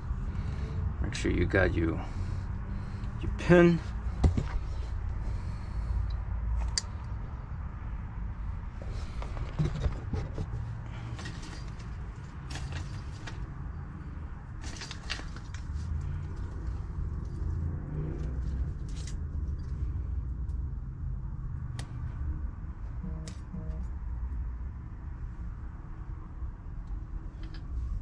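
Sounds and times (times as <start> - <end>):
low background rumble: 0.0 - 28.0
metallic clicks and scrapes: 8.9 - 13.5, 14.5 - 17.5.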